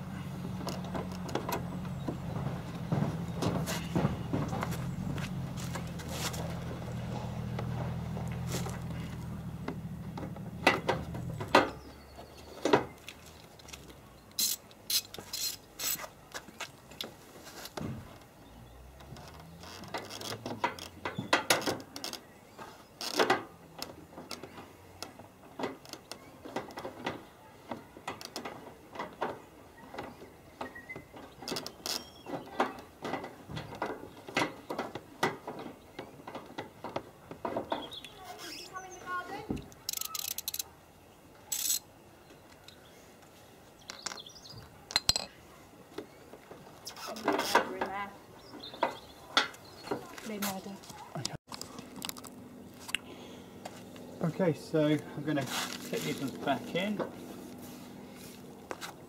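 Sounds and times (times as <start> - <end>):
socket ratchet clicking: 39.8 - 40.7.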